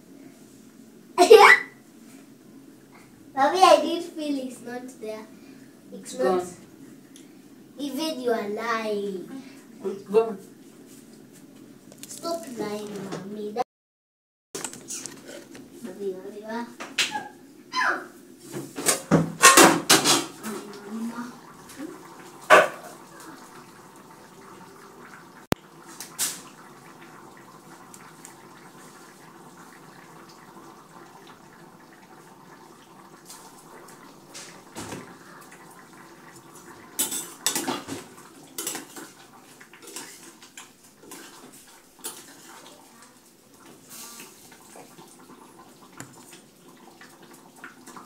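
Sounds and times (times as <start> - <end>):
dishes and utensils clinking: 37.0 - 38.0.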